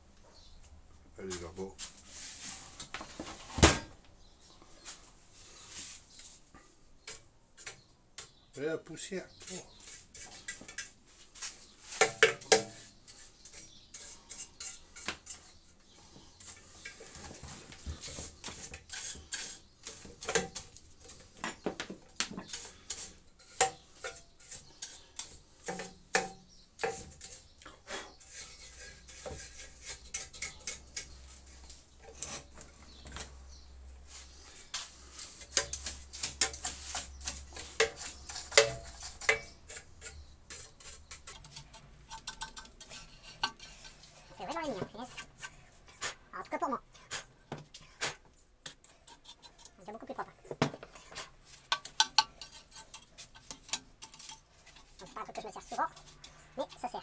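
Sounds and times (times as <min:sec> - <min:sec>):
brush tapping metal housing: 0:41.3 - 0:57.0
hand brush sweeping: 0:41.4 - 0:57.0.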